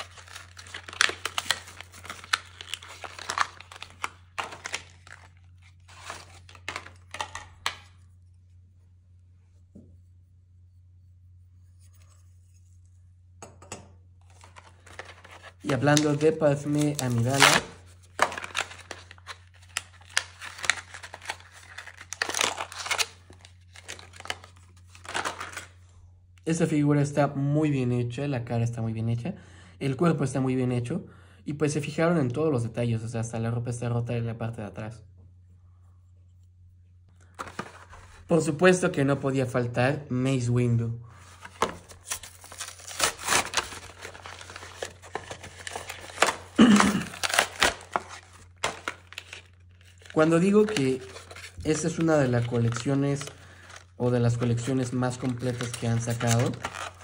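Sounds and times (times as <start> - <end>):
packaging tearing: 0.0 - 7.8, 14.2 - 25.8, 41.2 - 57.0
packaging clicks and crinkling: 0.0 - 7.9, 14.2 - 25.7, 41.4 - 57.0.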